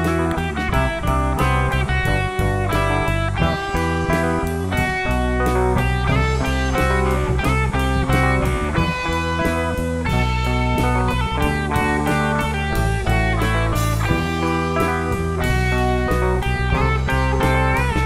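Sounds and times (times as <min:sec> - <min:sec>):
guitar instrumental with drums: 0:00.0 - 0:18.0.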